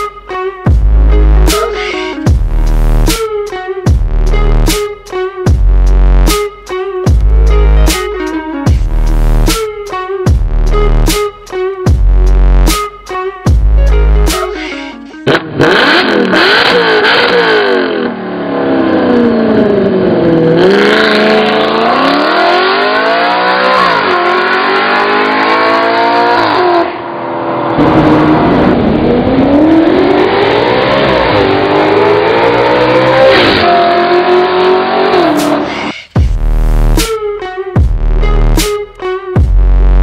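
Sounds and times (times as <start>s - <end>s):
car engine revving: 0.9s - 3.2s, 13.7s - 37.0s.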